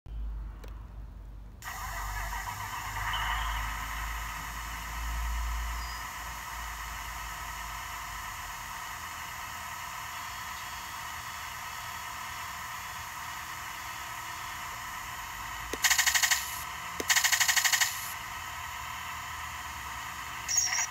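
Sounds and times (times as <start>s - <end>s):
simulated engine idling: 1.6s - 20.9s
simulated machine-gun fire: 15.8s - 18.2s.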